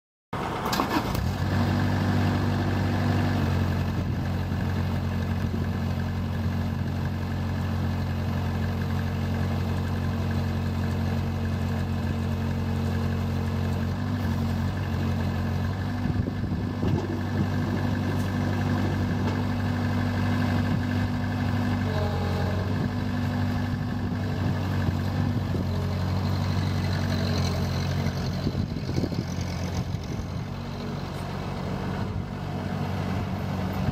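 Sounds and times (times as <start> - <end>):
road sweeper engine running: 0.4 - 33.9.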